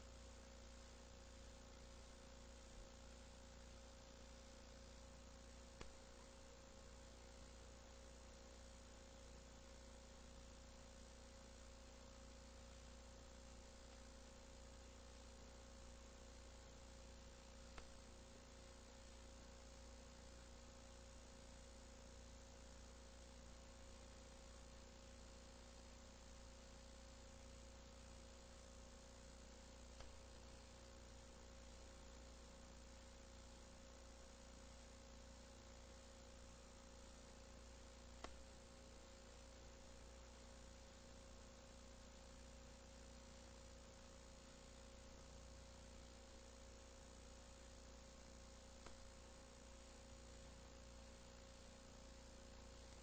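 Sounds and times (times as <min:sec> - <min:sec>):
faint videotape hiss and hum: 0:00.0 - 0:53.0
faint clicks: 0:17.7 - 0:18.0, 0:38.2 - 0:38.4, 0:48.8 - 0:49.0.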